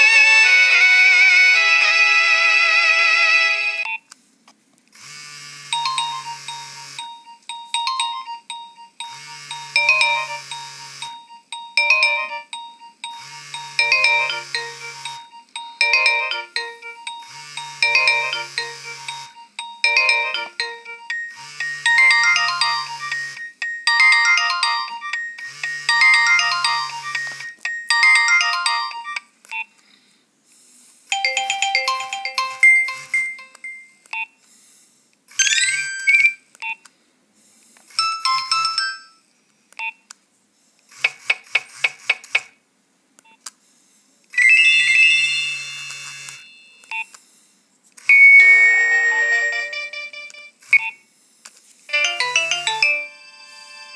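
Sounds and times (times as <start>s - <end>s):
phone ringtone melodies: 5.6s - 29.3s, 31.1s - 34.0s, 35.3s - 36.4s, 38.0s - 39.2s, 44.4s - 47.0s, 48.1s - 50.6s, 51.9s - 53.9s.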